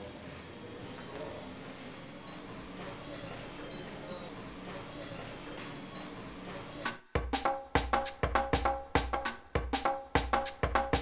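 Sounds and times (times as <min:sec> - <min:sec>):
short high electronic beeps: 0:02.2 - 0:04.4, 0:05.0 - 0:06.3.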